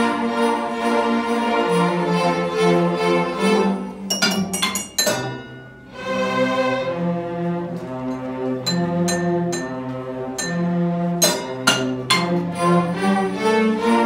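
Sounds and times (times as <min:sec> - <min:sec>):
string orchestra playing: 0:00.0 - 0:04.4, 0:05.2 - 0:14.0
sharp bright clinking strikes: 0:04.1 - 0:05.9, 0:08.1 - 0:12.7.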